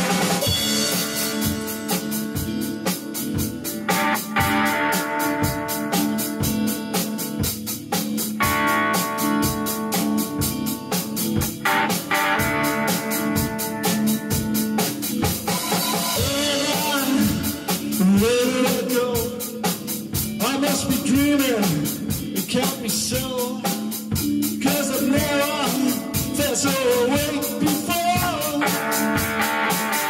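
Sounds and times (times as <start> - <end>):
drum kit beat: 0.0 - 30.0
electric guitar chords: 0.0 - 30.0
man singing: 16.1 - 29.8.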